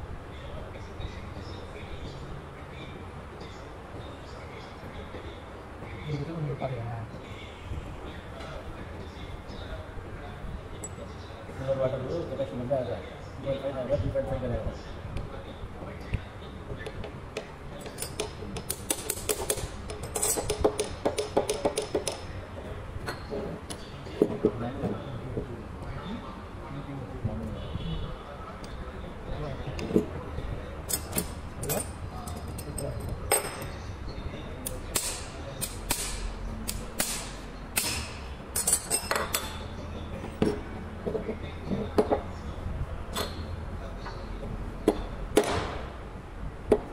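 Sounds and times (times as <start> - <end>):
metal parts clinking and clicking: 17.9 - 20.6, 30.9 - 33.7, 38.6 - 39.6.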